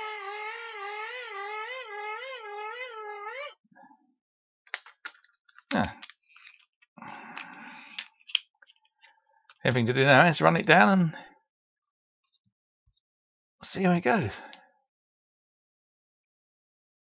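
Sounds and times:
hand-cranked dynamo whining: 0.0 - 3.6.

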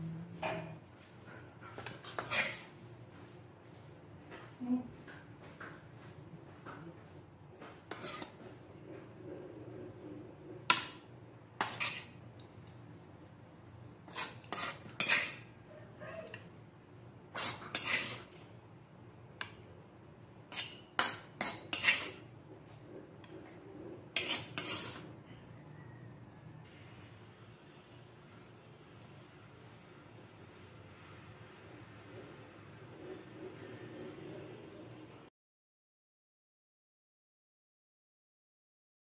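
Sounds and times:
wooden spatula scraping a pan: 1.3 - 3.2, 7.6 - 12.3, 14.0 - 15.6, 17.3 - 18.5, 20.5 - 25.2.

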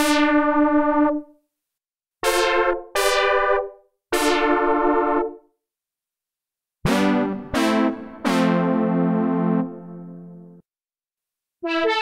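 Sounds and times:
synthesizer brass notes: 2.2 - 5.4, 6.9 - 10.6, 11.6 - 12.0.

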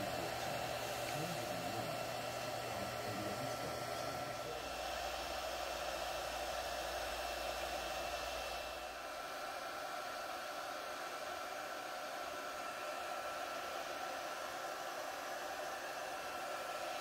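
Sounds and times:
cooling fans whirring: 0.0 - 10.3.

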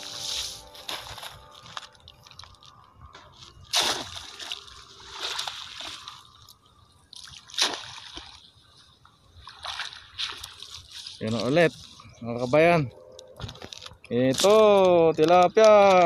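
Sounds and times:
water sloshing: 3.3 - 12.0
net splashing in water: 3.7 - 6.5, 7.1 - 8.4.

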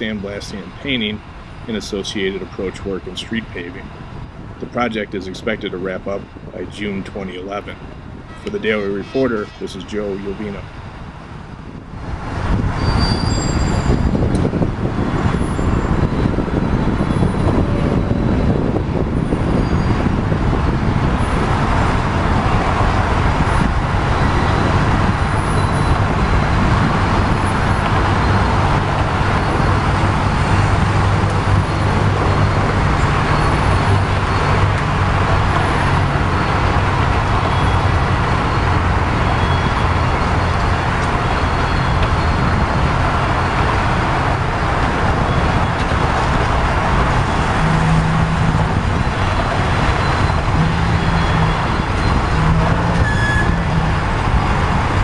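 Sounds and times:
traffic rumble: 0.0 - 55.0
crane engine running: 9.5 - 55.0
low engine hum: 10.2 - 55.0.

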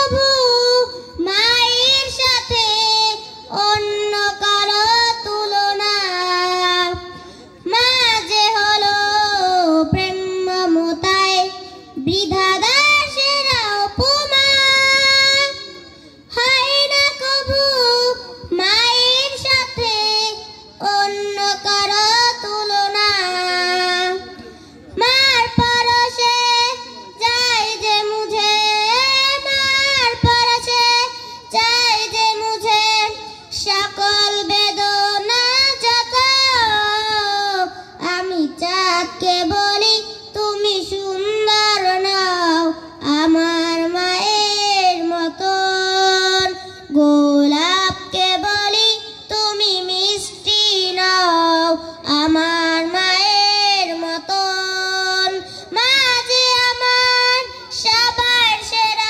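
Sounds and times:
girl singing into a microphone: 0.0 - 59.0.

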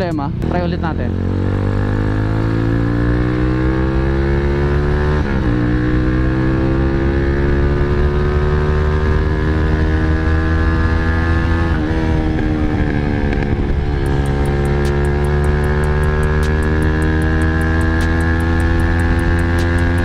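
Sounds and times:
motorcycle engine accelerating hard: 0.0 - 20.0.

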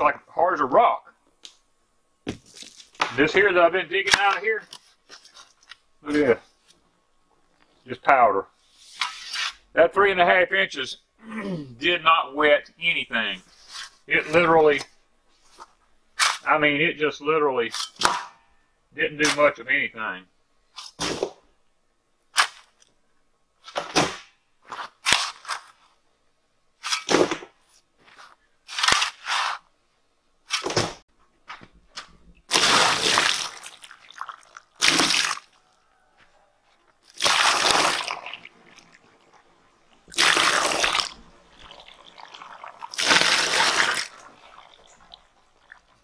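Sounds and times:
shovel scraping dry dirt: 8.8 - 9.6, 24.7 - 25.9, 26.8 - 27.2, 28.0 - 29.7.

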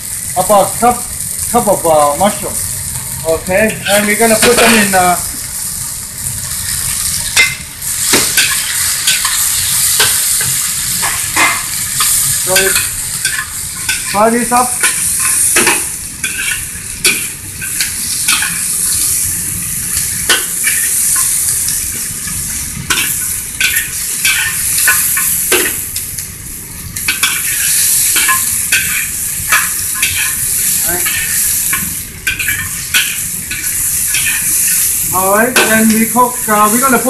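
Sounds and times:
vegetables sizzling in a wok: 0.0 - 37.0
metal spatula scraping a wok: 7.3 - 14.2, 14.8 - 19.0, 27.0 - 36.0.

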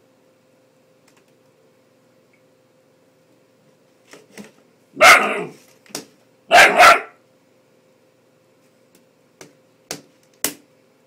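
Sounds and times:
puppy barking: 5.0 - 5.6, 6.5 - 7.2.

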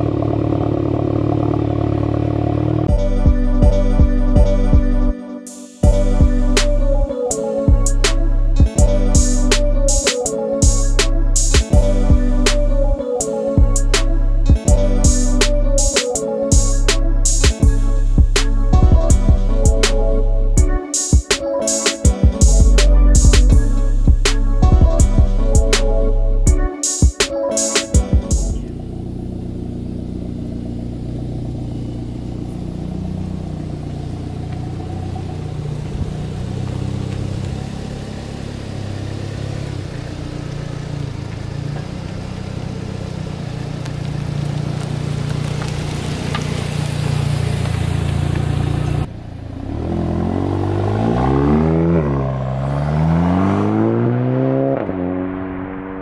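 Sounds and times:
car accelerating hard with gear shifts: 0.0 - 3.4, 28.5 - 56.0
car exhaust idling: 0.0 - 5.0, 28.4 - 49.9.

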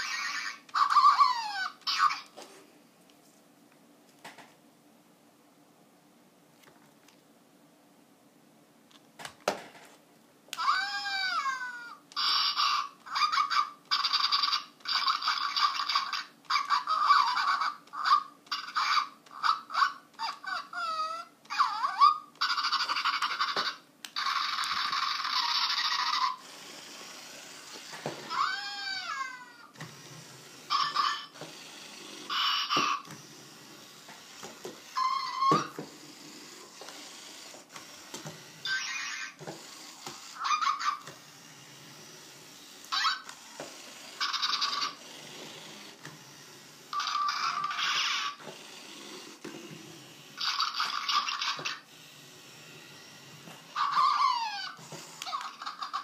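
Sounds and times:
toy motor whirring: 0.0 - 2.3, 10.6 - 56.0
toy electronic yips: 0.0 - 2.4, 10.6 - 48.5, 50.1 - 56.0.

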